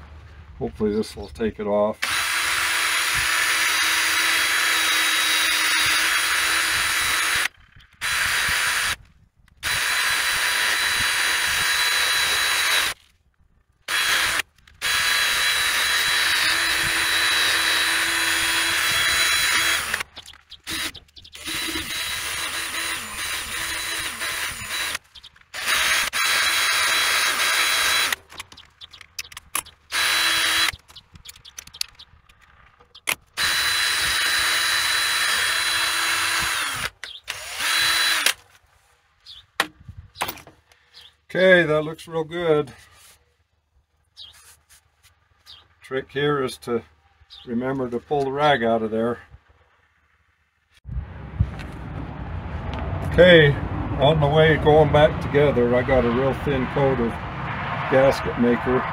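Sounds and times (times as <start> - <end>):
cordless drill scrubbing metal: 2.0 - 13.0, 13.9 - 31.9, 32.9 - 38.6.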